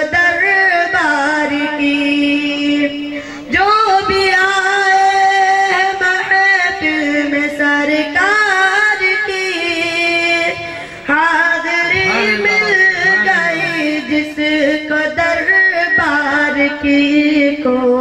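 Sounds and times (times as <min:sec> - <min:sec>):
boy singing into microphone: 0:00.0 - 0:18.0.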